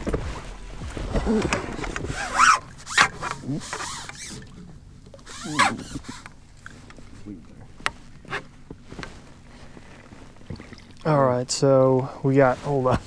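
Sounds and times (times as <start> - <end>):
water splashing: 0.0 - 8.2, 9.2 - 11.4.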